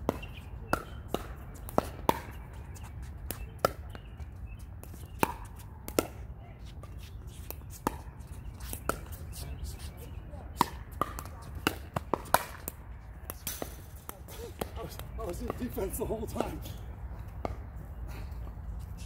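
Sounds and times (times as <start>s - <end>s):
ball bouncing on hard court: 0.0s - 2.6s, 10.6s - 16.7s.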